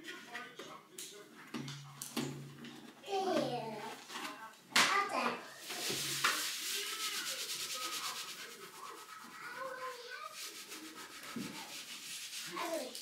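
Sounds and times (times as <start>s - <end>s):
cloth rubbing on glass: 5.6s - 13.0s.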